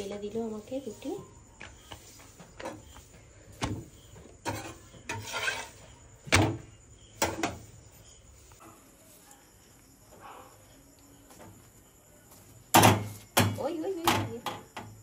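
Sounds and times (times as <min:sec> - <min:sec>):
spatula scraping: 0:04.4 - 0:06.0.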